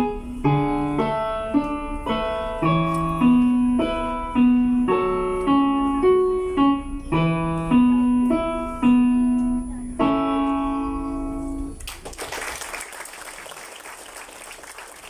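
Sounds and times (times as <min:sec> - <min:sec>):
digital piano chords: 0:00.0 - 0:11.8
audience applause: 0:11.8 - 0:15.0.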